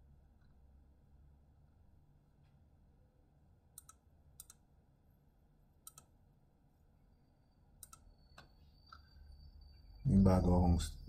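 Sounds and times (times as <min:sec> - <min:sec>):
computer mouse clicking: 0:03.8 - 0:04.6, 0:05.8 - 0:06.1, 0:07.8 - 0:08.6.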